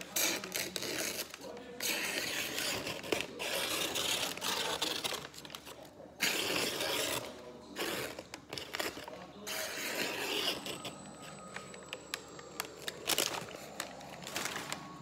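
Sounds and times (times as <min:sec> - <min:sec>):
newspaper rustling and crinkling: 0:02.4 - 0:09.3, 0:10.4 - 0:15.0.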